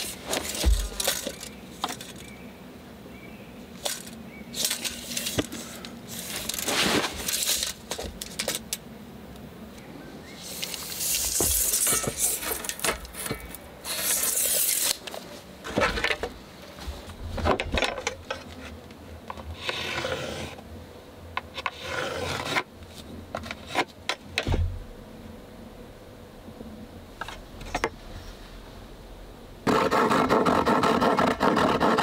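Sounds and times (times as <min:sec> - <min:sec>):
knocks and clatters of wood: 0:00.2 - 0:02.2, 0:06.4 - 0:08.7, 0:15.6 - 0:18.6, 0:23.3 - 0:24.8
board scraping against board: 0:03.8 - 0:08.6, 0:10.6 - 0:20.6, 0:21.4 - 0:24.6, 0:29.7 - 0:32.0.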